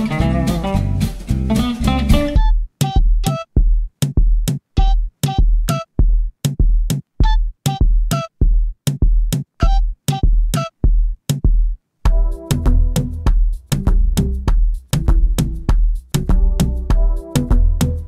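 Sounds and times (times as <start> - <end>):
drum machine beat: 0.0 - 18.0
held synth chords: 12.1 - 13.3.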